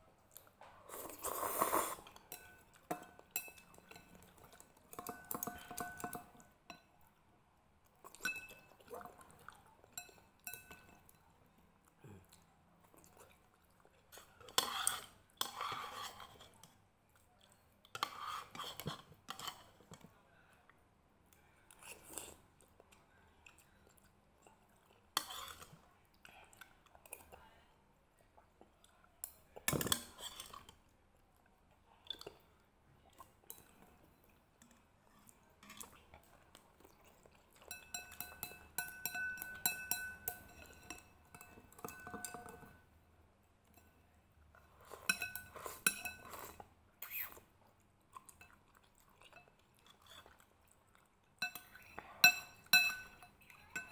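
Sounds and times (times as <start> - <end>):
utensils clinking on bowl: 2.1 - 6.9, 8.1 - 11.2, 37.6 - 42.8, 44.8 - 46.6, 51.4 - 53.9
chewing noodles: 44.5 - 53.9.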